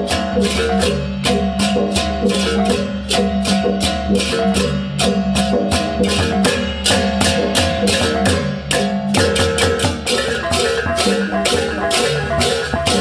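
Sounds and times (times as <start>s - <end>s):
drums: 0.0s - 13.0s
hand cymbals clashing: 0.0s - 13.0s
gong-chimes melody: 10.0s - 13.0s.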